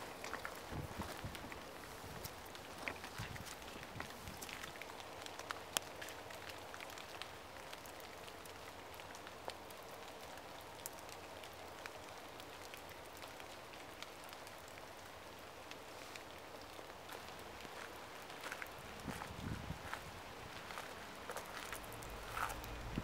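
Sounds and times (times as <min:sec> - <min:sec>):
light rain on leaves: 0:00.0 - 0:23.0.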